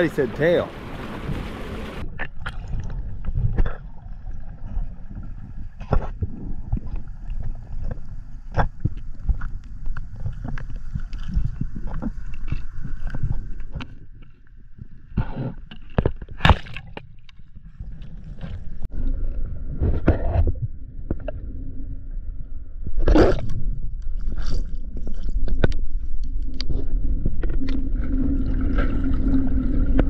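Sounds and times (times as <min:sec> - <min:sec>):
water rush: 0:00.0 - 0:03.0
bubbly water noise: 0:00.0 - 0:14.2, 0:15.2 - 0:30.0
underwater clicks and knocks: 0:01.1 - 0:04.0, 0:04.6 - 0:18.9, 0:24.9 - 0:28.0.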